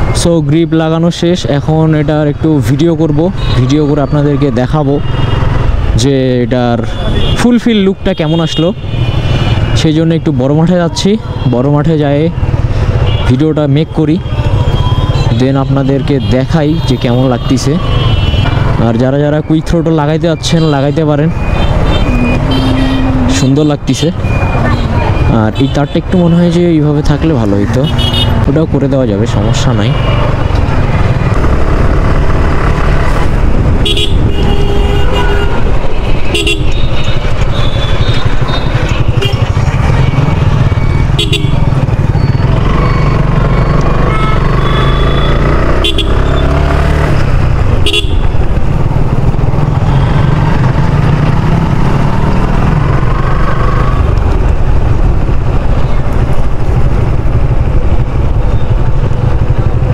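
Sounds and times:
horns tooting: 0:06.7 - 0:12.2, 0:12.9 - 0:28.6, 0:33.8 - 0:47.1, 0:47.8 - 0:48.4
motorcycle engine running: 0:21.3 - 0:23.6, 0:29.9 - 0:59.9.

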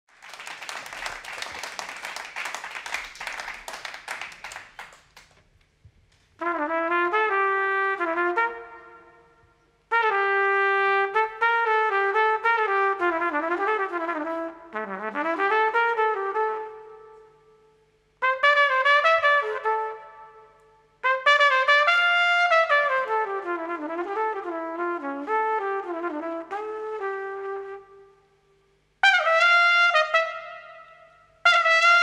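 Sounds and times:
audience applause: 0:00.1 - 0:05.4
jazz trumpet: 0:06.4 - 0:32.0.

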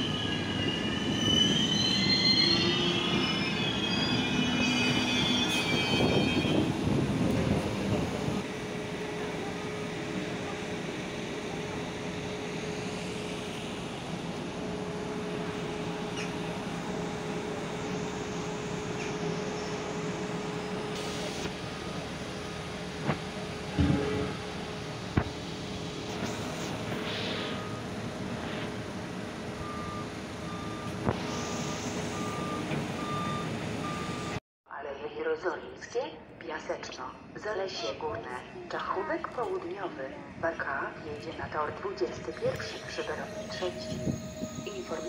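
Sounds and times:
reversing alarm beeping: 0:00.0 - 0:06.8, 0:27.2 - 0:28.0, 0:29.6 - 0:34.4, 0:42.1 - 0:45.0
machinery rumble: 0:00.0 - 0:34.2, 0:38.6 - 0:45.0
passenger train rolling past: 0:00.0 - 0:34.4, 0:37.4 - 0:45.0.

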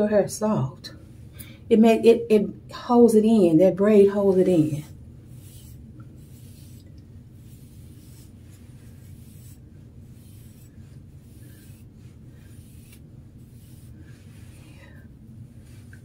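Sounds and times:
steady low hum: 0:00.0 - 0:16.0
hairbrush strokes through hair: 0:04.6 - 0:16.0.

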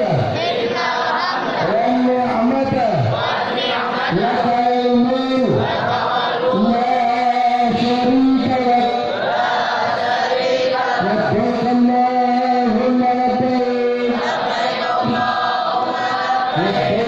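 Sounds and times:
young voices chanting in unison: 0:00.0 - 0:02.1, 0:02.9 - 0:04.5, 0:05.4 - 0:11.4, 0:14.0 - 0:17.0.

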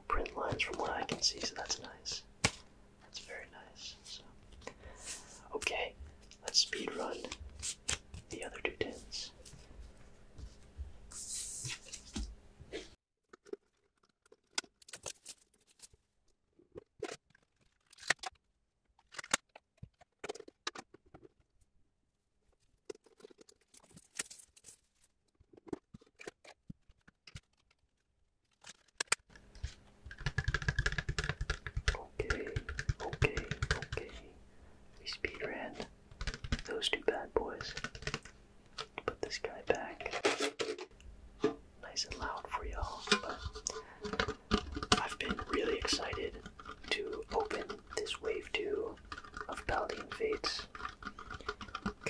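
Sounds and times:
packaging rustling: 0:48.9 - 0:52.0.

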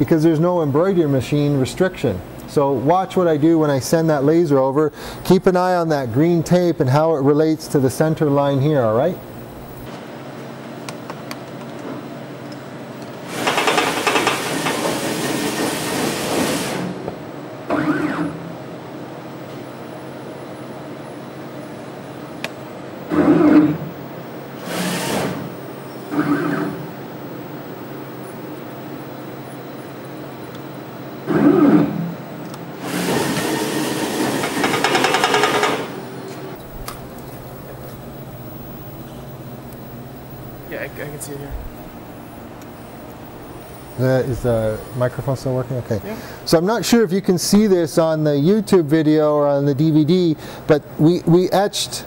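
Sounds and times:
steady machine hum: 0:00.0 - 0:52.0
motor-driven carriage rushing: 0:13.3 - 0:17.1, 0:26.1 - 0:26.9, 0:32.8 - 0:36.5
fast rattle: 0:13.4 - 0:14.9, 0:34.6 - 0:35.9
laser head machinery running: 0:17.7 - 0:18.6, 0:24.6 - 0:27.2
motor whine: 0:24.6 - 0:28.4.

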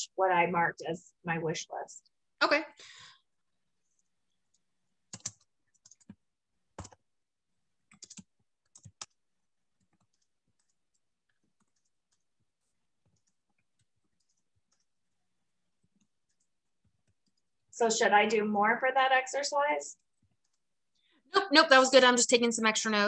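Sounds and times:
computer mouse clicking: 0:04.5 - 0:06.2, 0:06.8 - 0:07.0, 0:07.9 - 0:09.2, 0:09.8 - 0:12.3, 0:13.0 - 0:15.0.

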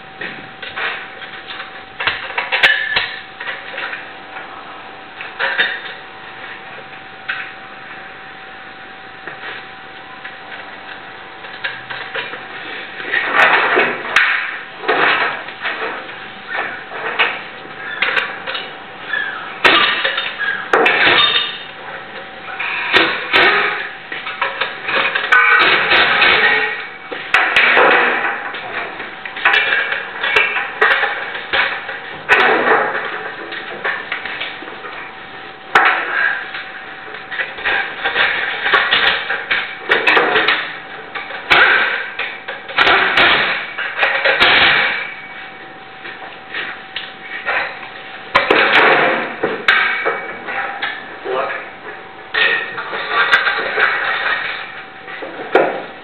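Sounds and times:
metal clanks and knocks: 0:11.4 - 0:56.0
metal clanks and clinks: 0:13.1 - 0:21.7, 0:22.6 - 0:35.1.

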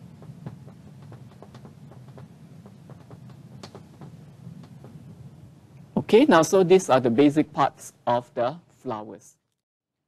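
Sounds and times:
low steady hum: 0:00.0 - 0:09.6
marker taps and squeaks on glass: 0:00.2 - 0:05.0.

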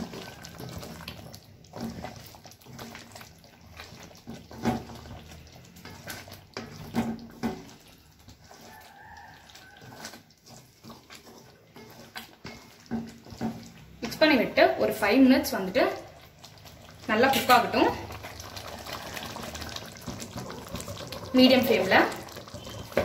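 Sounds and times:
rooster crowing: 0:00.0 - 0:00.6, 0:08.5 - 0:10.1
spoon scraping in a pan: 0:00.0 - 0:23.0.

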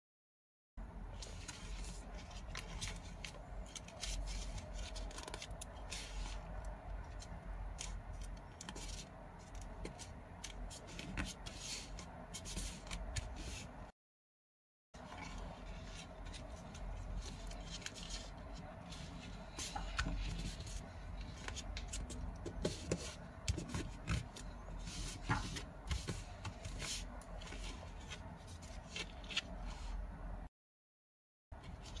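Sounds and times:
paper rustling and crinkling: 0:01.2 - 0:13.7, 0:15.0 - 0:30.0.

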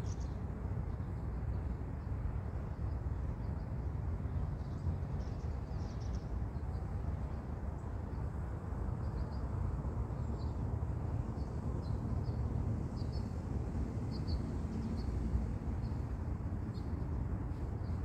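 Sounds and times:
steady low rumble: 0:07.0 - 0:18.0.

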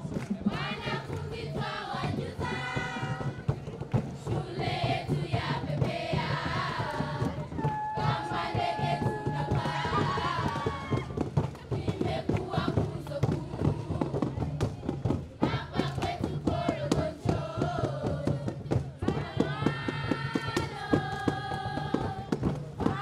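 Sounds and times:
steady drum beat: 0:00.0 - 0:23.0
children singing in chorus: 0:04.6 - 0:11.0.

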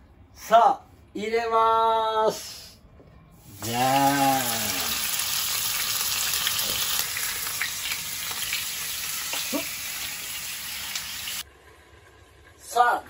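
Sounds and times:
meat sizzling in frying pan: 0:03.4 - 0:11.4.

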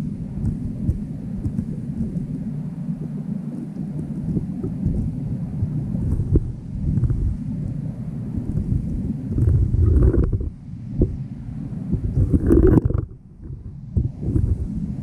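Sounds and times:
muffled underwater rumble: 0:00.0 - 0:15.0
faint ticks: 0:00.4 - 0:02.4.

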